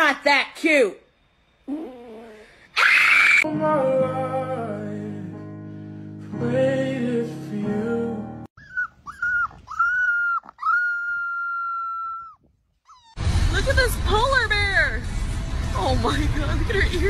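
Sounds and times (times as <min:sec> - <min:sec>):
background music: 0:03.5 - 0:08.5, 0:13.2 - 0:17.0
puppy howling: 0:08.6 - 0:13.2.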